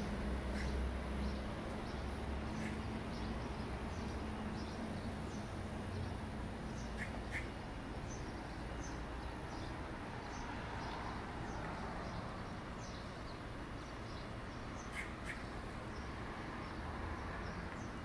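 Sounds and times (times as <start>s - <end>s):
steady background hum: 0.0s - 17.0s
small birds chirping: 0.0s - 18.0s.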